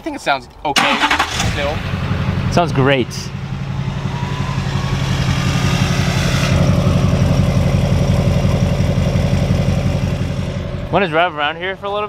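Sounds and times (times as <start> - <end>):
diesel engine idling: 0.9 - 12.0
faint rising whistle: 3.2 - 8.2.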